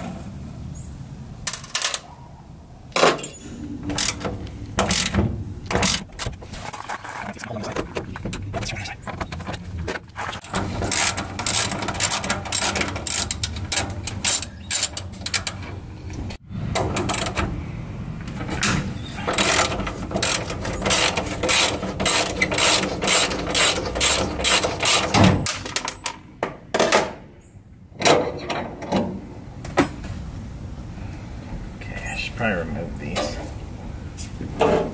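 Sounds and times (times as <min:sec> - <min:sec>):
ratchet wrench clicking: 0:10.9 - 0:15.6.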